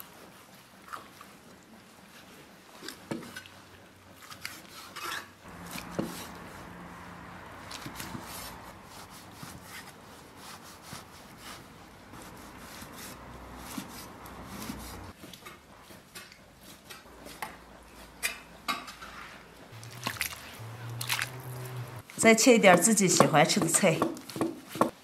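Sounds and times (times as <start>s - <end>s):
cleaver chopping on wooden board: 22.7s - 25.0s.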